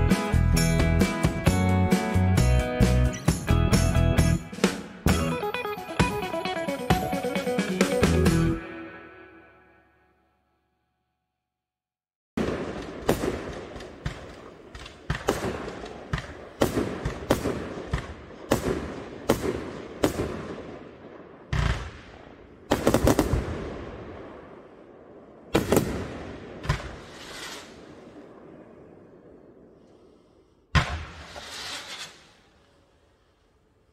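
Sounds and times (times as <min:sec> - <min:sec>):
fireworks crackle: 0:12.4 - 0:20.6, 0:25.5 - 0:28.5, 0:30.8 - 0:33.5
fireworks bangs: 0:12.4 - 0:29.8, 0:30.7 - 0:32.7.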